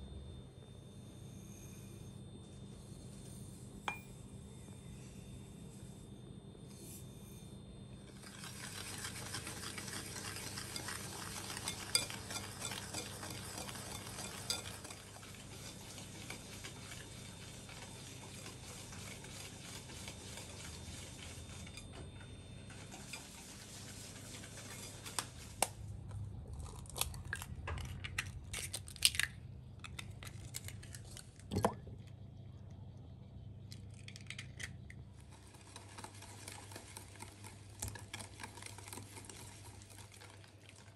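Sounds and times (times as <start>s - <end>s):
stirring in glass bowl: 8.0s - 22.0s, 22.7s - 25.6s, 35.2s - 40.9s.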